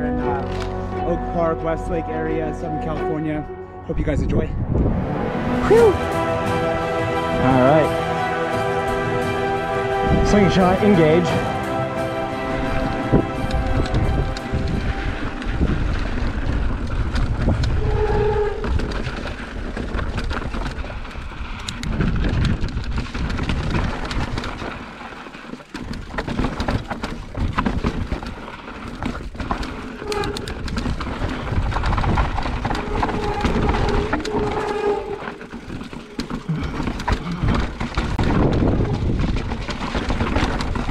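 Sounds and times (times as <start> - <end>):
bike clicks and rattles: 0.3 - 0.8, 13.5 - 40.9
wind buffeting microphone: 3.9 - 5.9, 12.4 - 24.8, 30.1 - 40.9
tyres rumbling over dirt and rock: 6.0 - 40.9.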